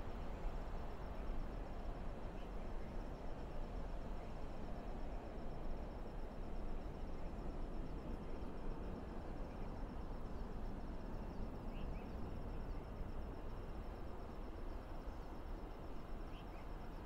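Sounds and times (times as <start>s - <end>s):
insect chirping rapidly: 4.6s - 17.0s.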